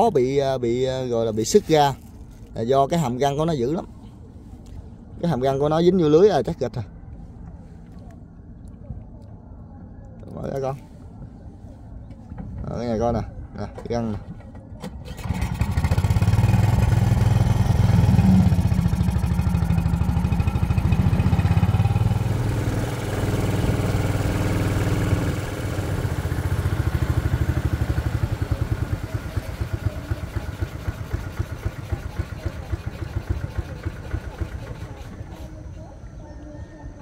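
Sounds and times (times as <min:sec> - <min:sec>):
boat engine rumbling: 0:10.9 - 0:37.0.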